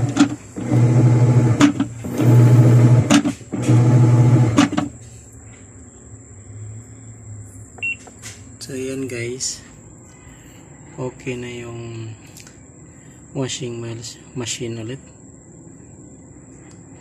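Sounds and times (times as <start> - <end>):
washing machine motor humming: 0.0 - 5.0.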